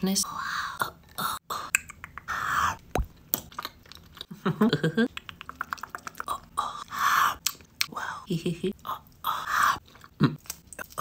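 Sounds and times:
person humming mmm: 0.8 - 2.8, 5.2 - 8.2
wet chewing mouth noises: 5.1 - 7.9.

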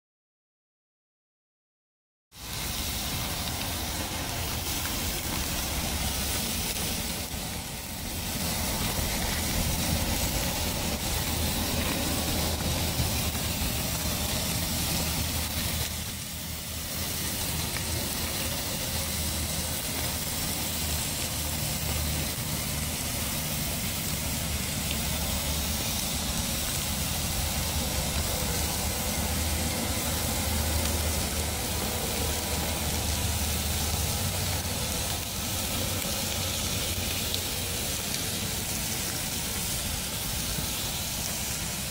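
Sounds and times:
steaks sizzling on a grill: 2.4 - 41.9.

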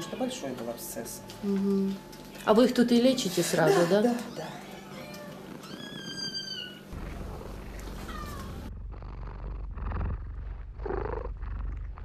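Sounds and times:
cat purring: 4.5 - 12.0.

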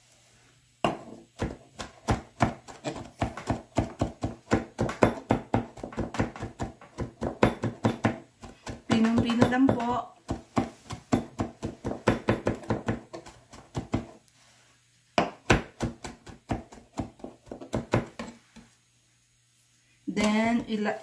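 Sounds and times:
knife chopping on cutting board: 0.9 - 14.2, 15.2 - 18.4.

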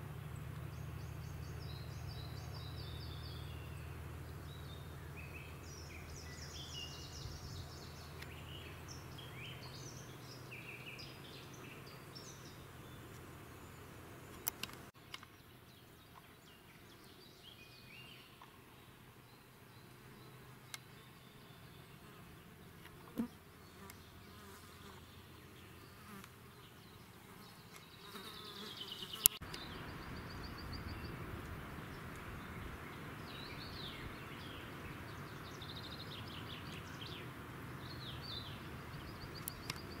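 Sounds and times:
small birds chirping: 0.0 - 40.0
insects buzzing: 0.7 - 40.0
sharp click: 14.3 - 15.3.

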